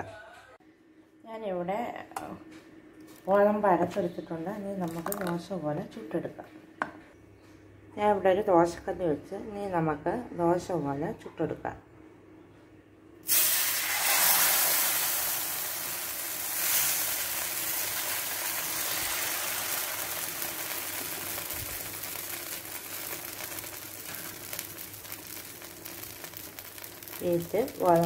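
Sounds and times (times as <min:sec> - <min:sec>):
batter sizzling on a griddle: 0:13.2 - 0:28.0.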